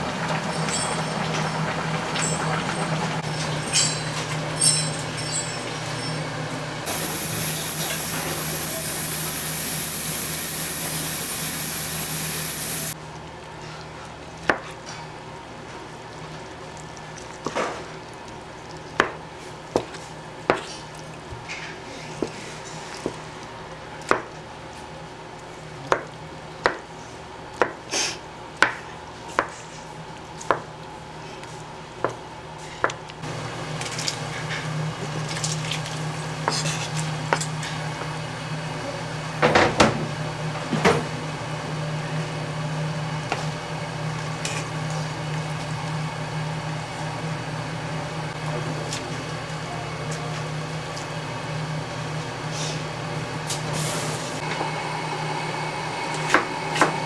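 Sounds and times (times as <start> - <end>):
steady hum: 6.9 - 13.0.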